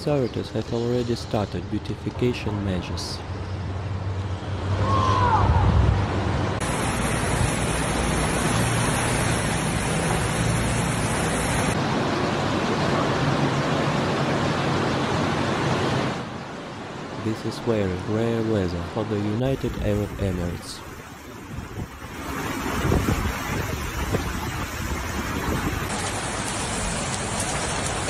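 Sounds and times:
car driving through floodwater: 6.6s - 12.6s, 20.8s - 28.0s
rushing floodwater: 6.6s - 28.0s.

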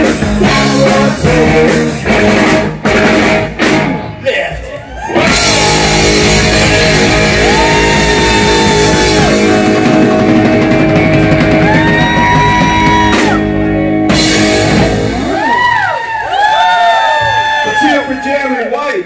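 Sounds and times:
blues rock band playing loud: 0.0s - 4.2s, 5.0s - 16.1s.

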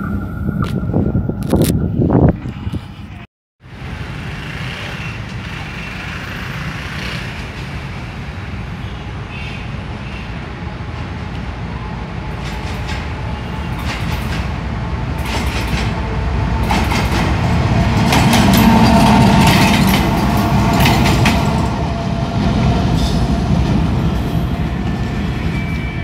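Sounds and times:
wheels clicking over rail joints: 16.6s - 21.8s.

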